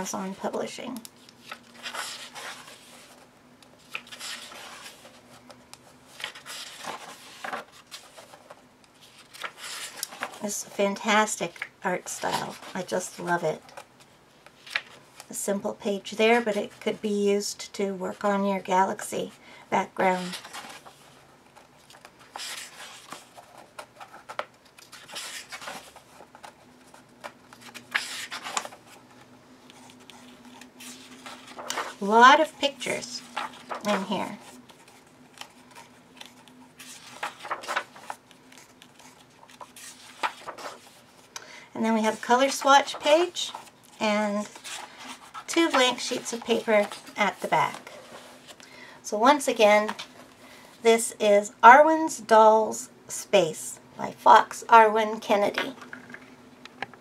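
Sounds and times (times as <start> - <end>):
book pages turning: 0.3 - 10.6, 11.2 - 15.4, 20.0 - 41.4, 42.0 - 48.6.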